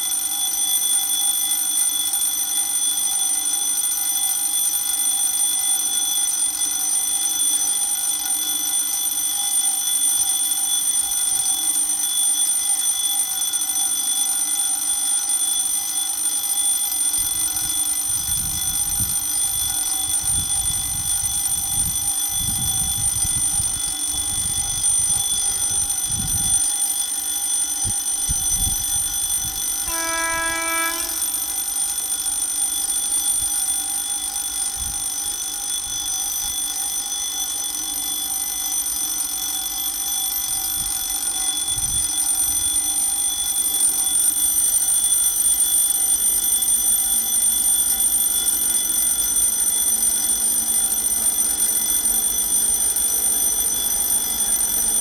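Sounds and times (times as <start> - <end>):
level crossing bell ringing: 28.7 - 32.6
locomotive horn: 29.9 - 31.5.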